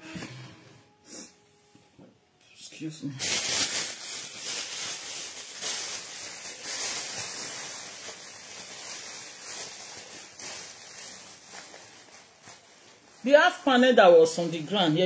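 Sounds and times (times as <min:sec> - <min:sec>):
paper tissue rustling: 0:03.2 - 0:15.0.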